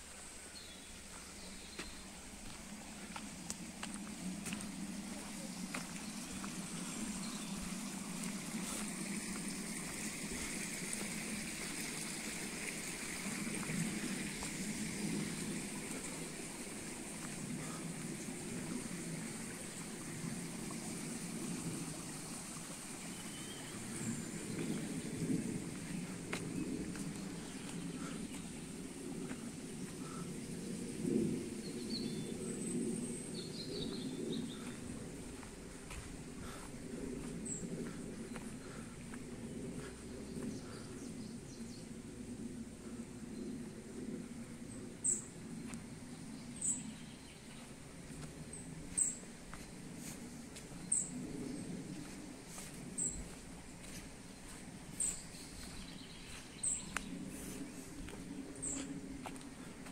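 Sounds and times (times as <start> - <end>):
low rumbling microphone noise: 0.0 - 59.9
stream water rushing: 2.2 - 30.2.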